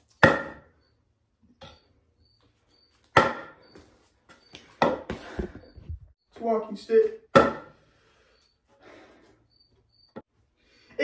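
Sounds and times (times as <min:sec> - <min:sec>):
wooden staff knocking on concrete: 0:04.8 - 0:05.2.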